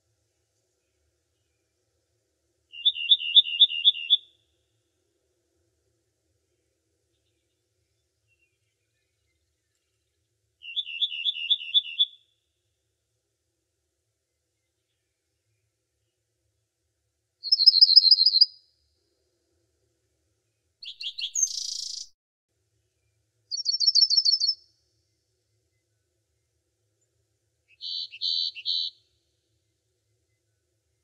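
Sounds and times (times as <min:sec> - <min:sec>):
songbird singing trills: 0:02.7 - 0:04.4, 0:08.3 - 0:12.3, 0:17.4 - 0:18.6, 0:20.8 - 0:22.2, 0:23.5 - 0:24.6, 0:27.7 - 0:29.0.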